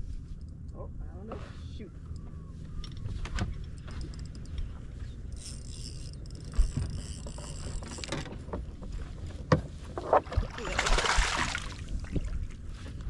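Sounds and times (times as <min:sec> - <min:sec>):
low wind rumble on microphone: 0:00.0 - 0:13.0
fishing reel clicking: 0:05.3 - 0:08.2.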